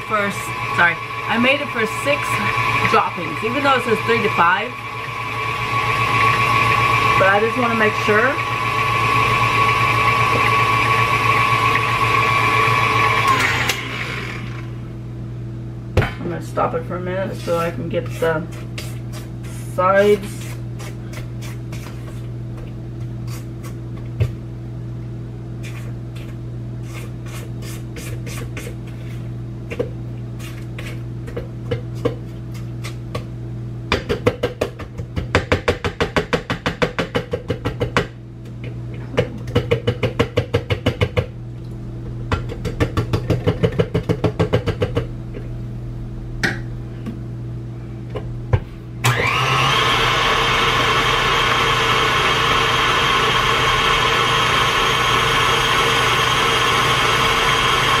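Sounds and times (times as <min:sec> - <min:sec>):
electric mixer running: 0:00.0 - 0:15.0, 0:49.0 - 0:58.0
utensil scraping dough in a bowl: 0:17.3 - 0:24.4, 0:25.6 - 0:33.2.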